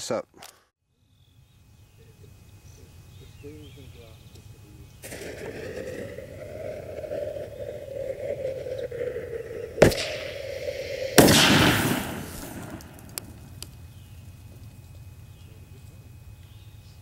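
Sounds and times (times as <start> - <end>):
rushing hiss: 5.0 - 13.4
firework bang: 5.0 - 13.6
faint pops: 5.0 - 13.8
firework blast: 5.0 - 13.8.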